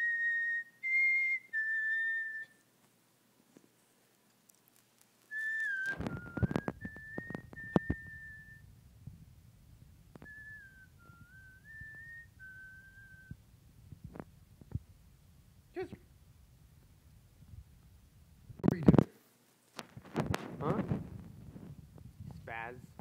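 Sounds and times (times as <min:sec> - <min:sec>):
person whistling a tune: 0:00.0 - 0:02.6, 0:05.3 - 0:08.6, 0:10.2 - 0:13.4.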